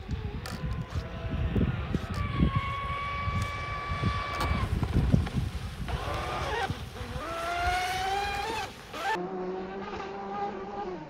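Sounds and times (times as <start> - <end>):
toy speedboat motor whining: 1.9 - 4.7, 5.9 - 9.3.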